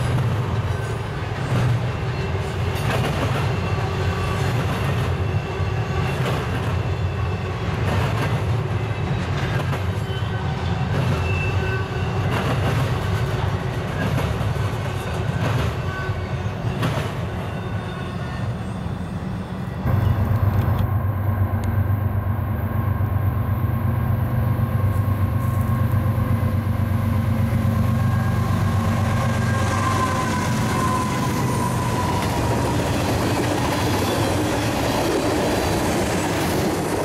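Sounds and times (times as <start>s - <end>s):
freight train rumble: 0.0s - 37.0s
high-pitched wheel squeals: 9.9s - 12.4s, 27.8s - 34.6s.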